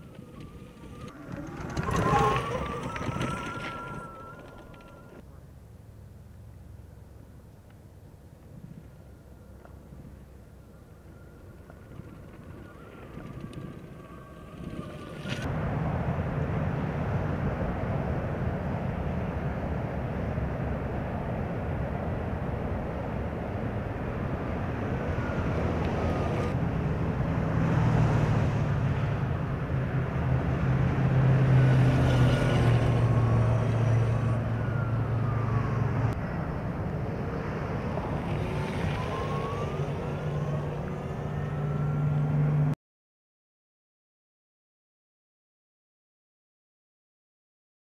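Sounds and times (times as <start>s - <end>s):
motorcycle riding by: 0.0s - 5.1s.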